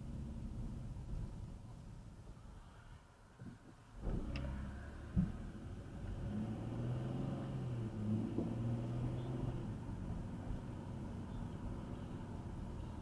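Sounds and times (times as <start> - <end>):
road drone: 0.0 - 13.0
car engine accelerating: 4.0 - 13.0.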